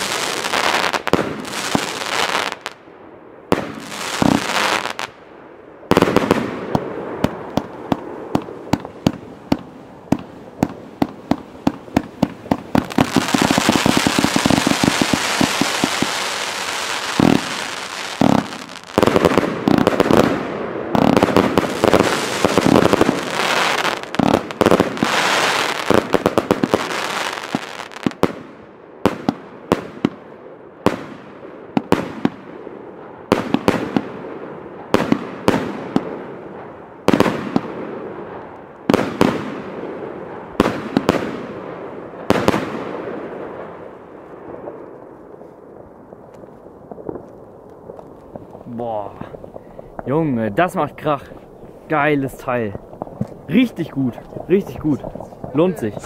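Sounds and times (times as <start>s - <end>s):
firework shots: 0.0s - 2.8s, 3.5s - 5.2s, 5.9s - 30.2s, 30.8s - 45.2s, 46.2s - 50.2s, 52.4s - 56.0s
firework hissing and crackling: 10.2s - 20.4s, 21.0s - 28.2s.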